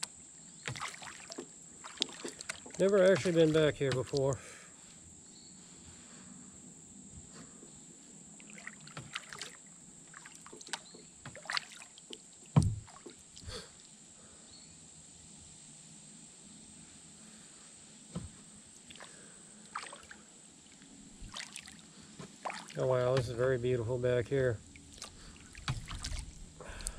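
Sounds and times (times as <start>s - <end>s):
paddle dipping into water: 0.6s - 4.4s, 8.4s - 13.6s, 18.2s - 23.5s, 24.6s - 26.9s
loud dull thump: 12.6s - 12.9s, 18.1s - 18.4s.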